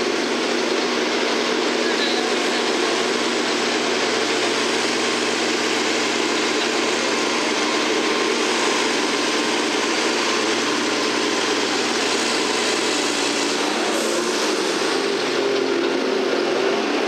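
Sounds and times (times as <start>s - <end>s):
tractor engine under load: 0.0s - 17.0s.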